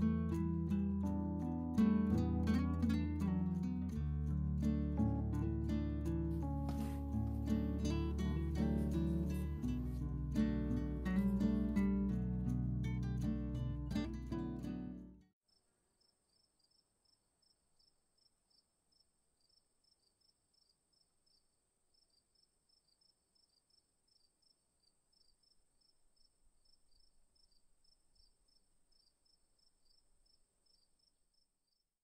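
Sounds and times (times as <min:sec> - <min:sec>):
faint high-pitched chirping: 0:15.5 - 0:32.0.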